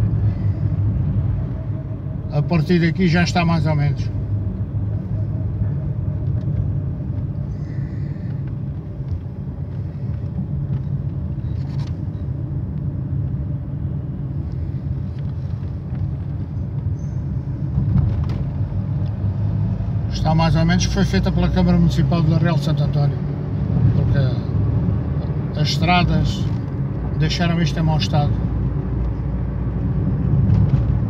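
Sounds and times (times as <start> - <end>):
car engine and tyres rumbling: 0.0 - 31.0.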